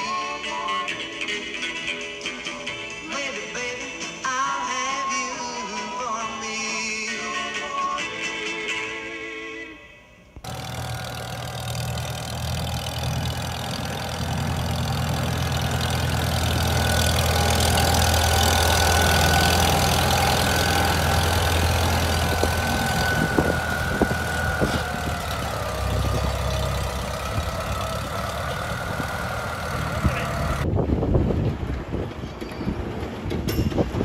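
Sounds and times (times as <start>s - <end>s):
tractor engine running: 10.4s - 30.7s.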